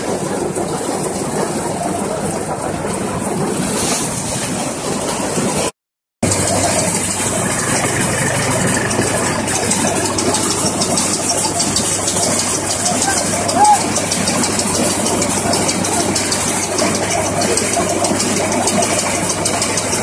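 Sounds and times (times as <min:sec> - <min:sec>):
thresher running: 0:06.2 - 0:20.0.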